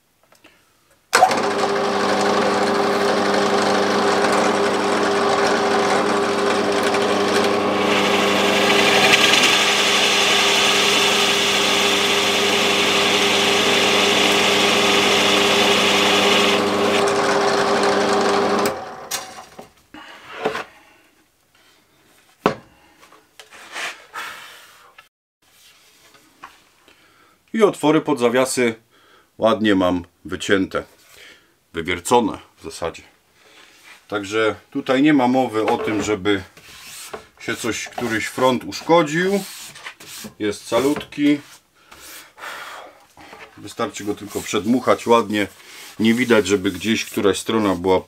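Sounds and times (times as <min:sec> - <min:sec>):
drill bit cutting into wood: 0:01.2 - 0:19.2
drill press motor running: 0:01.2 - 0:19.4.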